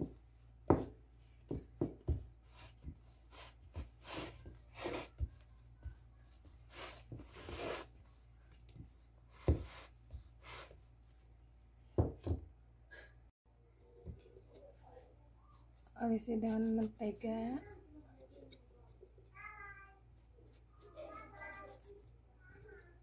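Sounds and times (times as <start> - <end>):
bottle rubbing over dough: 2.5 - 8.3.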